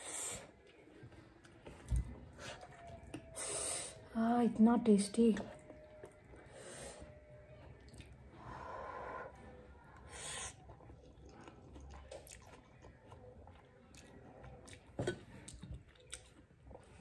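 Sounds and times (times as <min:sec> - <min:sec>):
quiet chewing: 0:00.4 - 0:03.4, 0:05.4 - 0:17.0.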